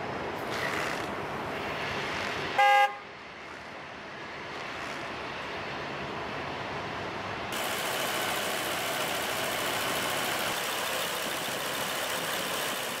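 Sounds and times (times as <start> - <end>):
pickup engine idling: 7.6 - 13.0.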